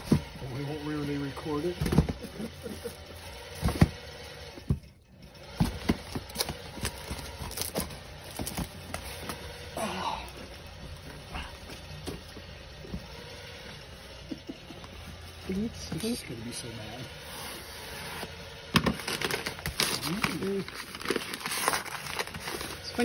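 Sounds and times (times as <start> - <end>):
cardboard rustling: 0.0 - 9.6, 17.1 - 23.0
knocks and bumps on cardboard: 5.5 - 9.4.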